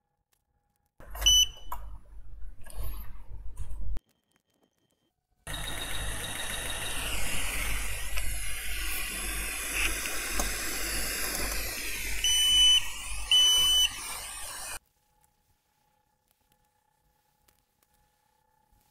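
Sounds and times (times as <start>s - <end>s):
hot air gun hissing: 6.0s - 14.8s
short high electronic beeps: 12.2s - 14.8s.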